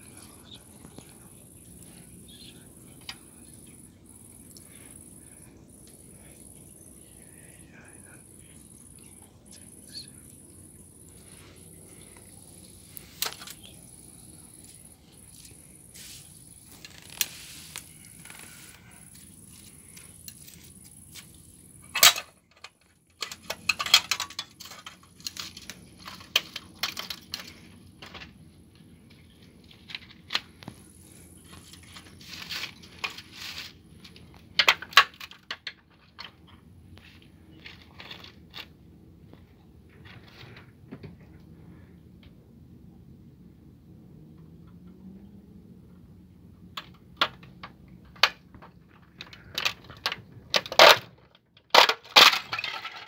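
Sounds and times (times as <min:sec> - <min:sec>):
crickets chirping: 0:00.0 - 0:40.8
plastic toy creaking and crinkling: 0:12.9 - 0:15.8, 0:16.5 - 0:28.4, 0:29.4 - 0:40.8, 0:46.8 - 0:53.0.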